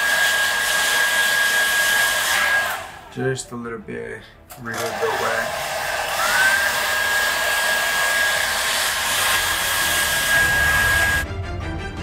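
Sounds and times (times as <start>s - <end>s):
hair dryer blowing: 0.0s - 3.1s, 4.7s - 11.2s.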